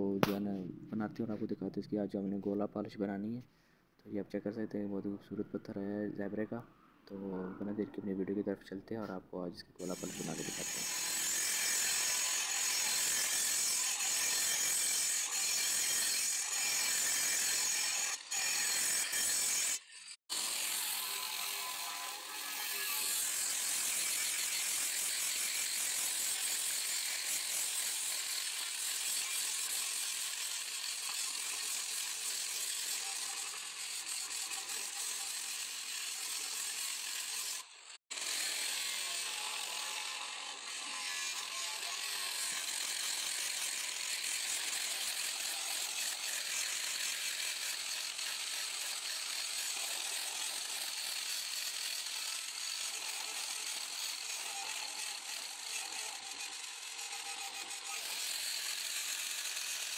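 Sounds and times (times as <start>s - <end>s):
angle grinder grinding stone: 9.8s - 59.9s.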